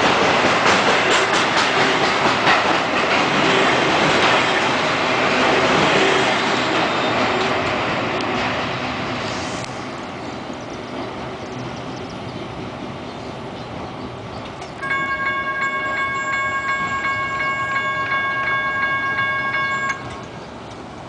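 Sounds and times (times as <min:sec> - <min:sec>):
freight train rumbling: 0:00.0 - 0:21.0
railroad crossing bell ringing: 0:14.8 - 0:20.5.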